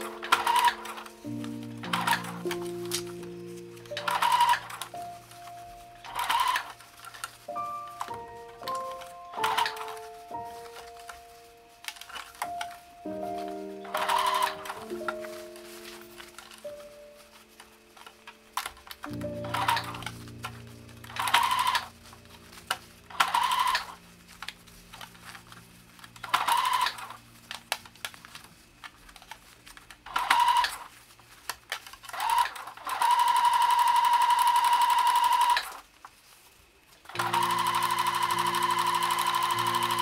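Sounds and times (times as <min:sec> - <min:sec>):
sewing machine stitching: 0:00.0 - 0:01.1, 0:01.8 - 0:03.0, 0:03.9 - 0:04.9, 0:06.1 - 0:07.3, 0:09.4 - 0:10.0, 0:13.9 - 0:14.8, 0:32.1 - 0:35.8, 0:37.1 - 0:40.0.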